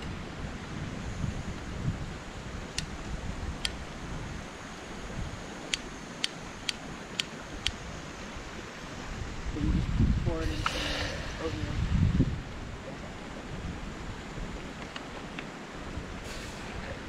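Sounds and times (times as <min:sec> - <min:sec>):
camp stove igniter clicking: 0:02.7 - 0:03.0, 0:03.6 - 0:03.8, 0:05.6 - 0:07.8.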